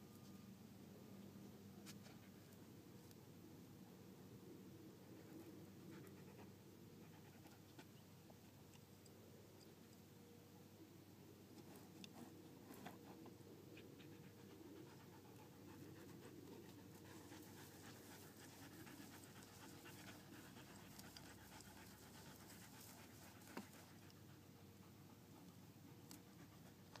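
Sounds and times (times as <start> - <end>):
dog panting: 12.1 - 27.0.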